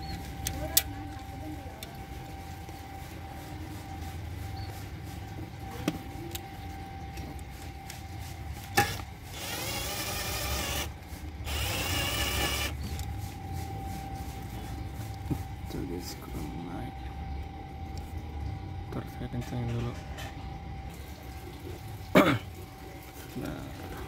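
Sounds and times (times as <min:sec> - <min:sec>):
cordless drill driving screw: 0:08.8 - 0:12.8.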